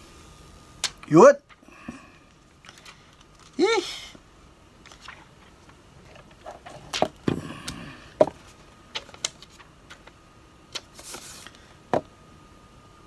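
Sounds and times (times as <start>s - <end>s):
plastic rustle: 8.1s - 10.2s.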